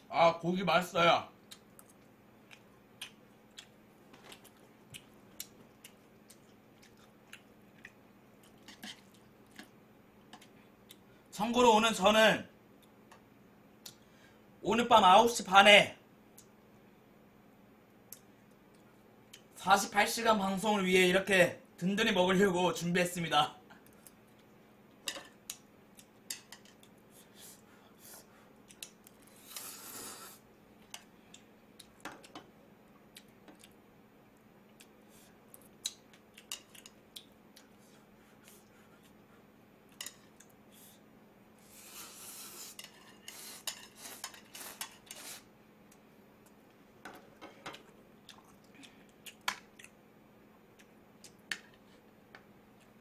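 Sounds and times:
noisy eating: 0:01.3 - 0:11.1, 0:25.5 - 0:46.8, 0:47.7 - 0:52.1.

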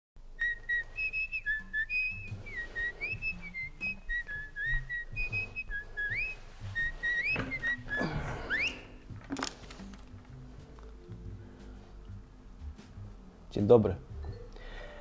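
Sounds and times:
whistled melody: 0:00.2 - 0:09.2.

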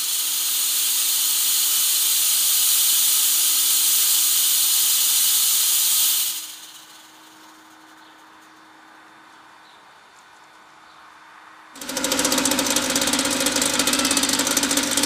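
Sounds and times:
smoke machine hissing: 0:00.0 - 0:07.8, 0:11.8 - 0:15.0.

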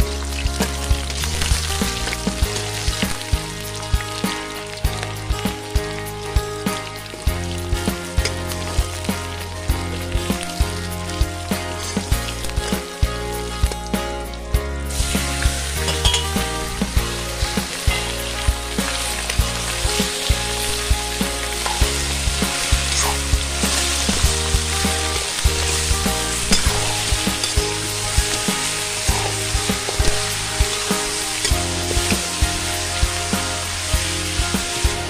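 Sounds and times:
meat sizzling in hot oil: 0:00.0 - 0:35.0
metal spoon clinking and scraping: 0:15.8 - 0:16.4.

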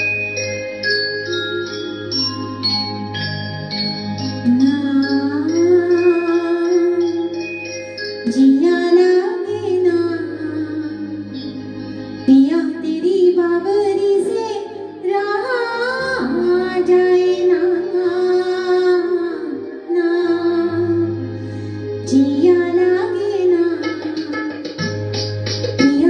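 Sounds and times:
instrumental accompaniment: 0:00.0 - 0:26.0
woman singing into a microphone: 0:04.4 - 0:07.5, 0:08.2 - 0:24.9, 0:25.8 - 0:26.0.

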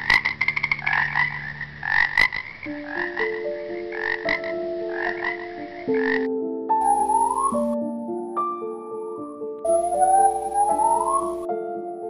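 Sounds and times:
frog croaking: 0:00.0 - 0:07.8, 0:09.6 - 0:11.5.

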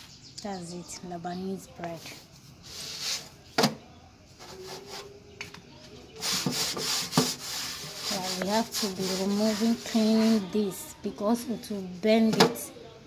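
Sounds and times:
cloth scraping metal plate: 0:06.2 - 0:10.5.

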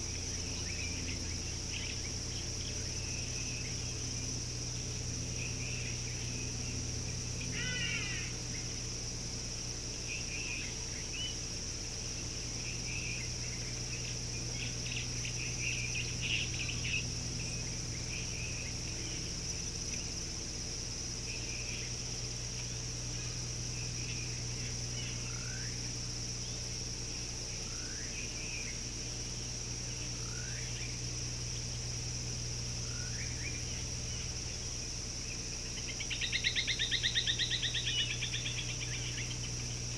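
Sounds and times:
insect chorus: 0:00.0 - 0:39.9
low steady hum: 0:00.0 - 0:39.9.

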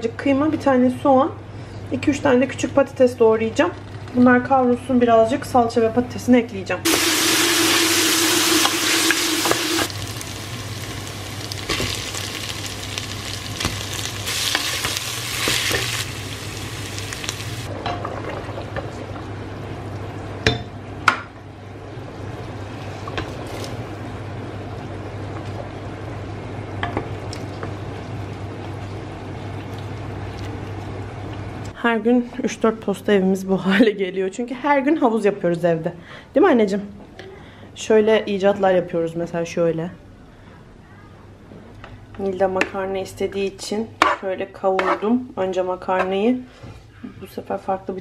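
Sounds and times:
food sizzling in a pot: 0:06.9 - 0:17.7.

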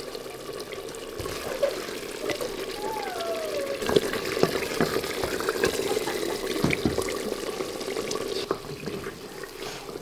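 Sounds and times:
curry bubbling in pot: 0:00.0 - 0:10.0.

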